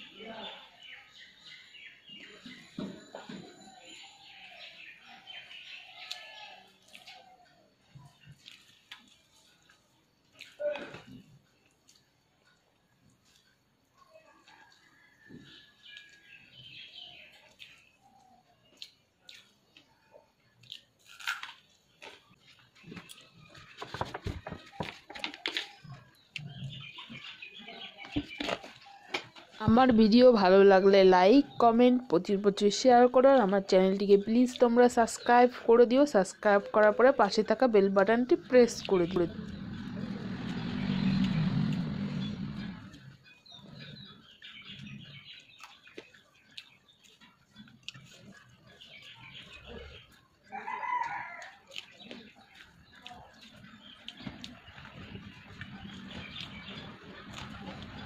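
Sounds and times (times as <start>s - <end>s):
birds chirping faintly: 0.0s - 58.0s
small eating clicks: 5.3s - 23.7s, 31.5s - 58.0s
person chewing and lip smacking: 6.0s - 13.6s, 17.3s - 23.5s, 45.5s - 50.3s, 51.0s - 58.0s
vehicle engine passing: 38.9s - 43.8s.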